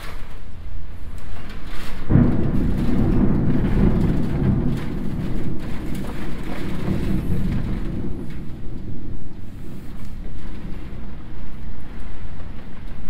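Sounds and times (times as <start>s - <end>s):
low thunder rumble: 0.0s - 13.0s.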